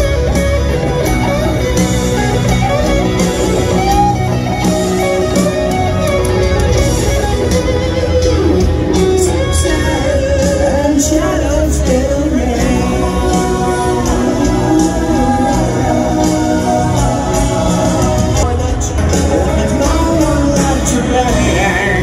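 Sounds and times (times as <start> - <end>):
electric guitar solo: 0.0 - 10.7
rock band playing a power ballad: 0.0 - 22.0.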